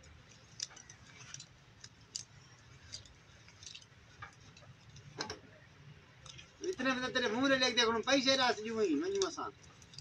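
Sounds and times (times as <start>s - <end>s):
light clicks and ticks: 0.0s - 5.4s.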